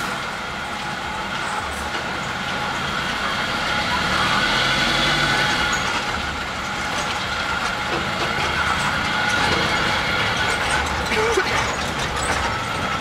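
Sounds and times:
tram engine and road noise: 0:00.0 - 0:13.0.

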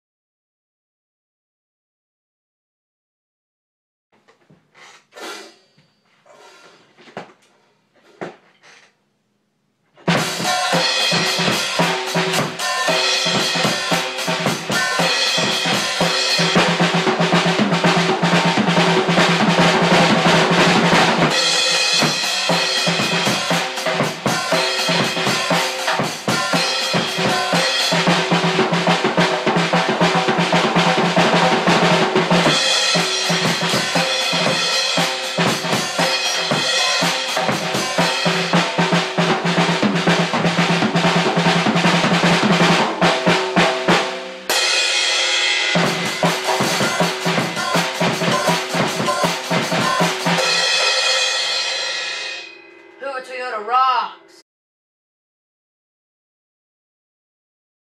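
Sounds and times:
acoustic drum kit beat: 0:05.1 - 0:05.8, 0:10.0 - 0:54.1.

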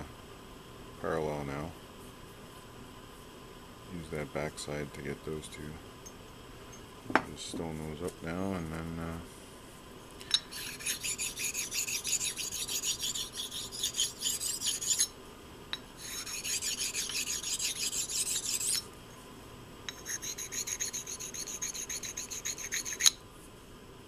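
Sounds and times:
sharpening stone scraping steel: 0:10.4 - 0:15.1, 0:16.0 - 0:18.9, 0:19.9 - 0:23.2.

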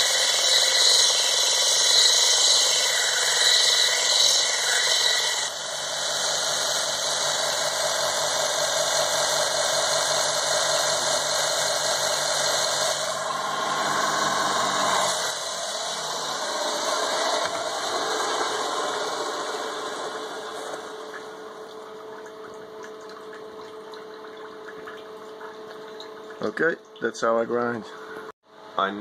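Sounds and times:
electrode grinding on sanding belt: 0:00.0 - 0:21.1
belt sander running: 0:00.0 - 0:21.6.

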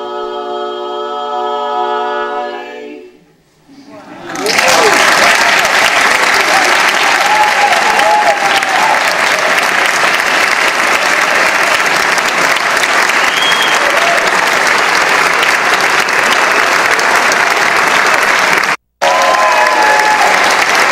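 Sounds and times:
audience applauding: 0:04.2 - 0:20.9.

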